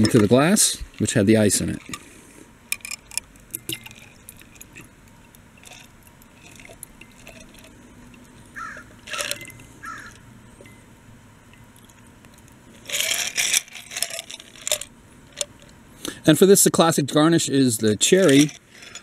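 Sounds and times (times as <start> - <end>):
liquid trickling into glass: 2.8 - 8.4.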